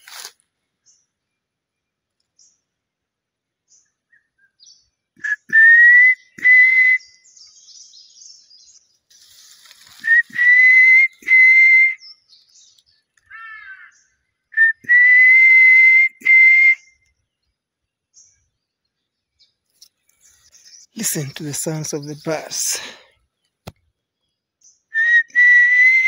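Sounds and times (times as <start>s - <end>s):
person whistling: 5.2s - 7.0s, 10.0s - 12.0s, 14.6s - 16.8s, 25.0s - 26.0s
faint bird calls: 13.2s - 14.6s.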